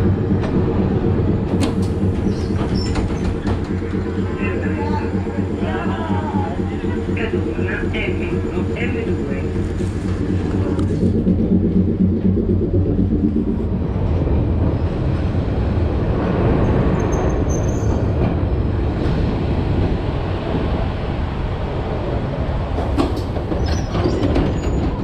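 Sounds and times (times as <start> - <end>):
pitched hum: 0.0 - 16.6
tram wheels rumbling on rails: 0.0 - 25.0.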